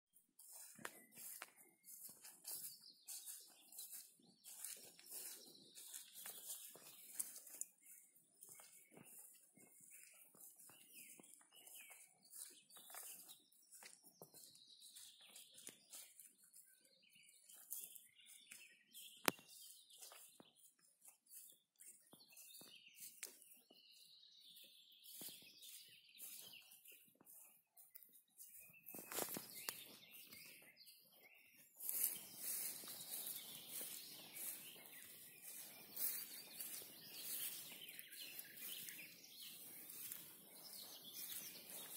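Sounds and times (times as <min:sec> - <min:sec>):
faint birdsong: 0:00.1 - 0:41.9
rustling and swishing in grass: 0:00.4 - 0:16.4, 0:28.5 - 0:29.9, 0:31.8 - 0:41.9.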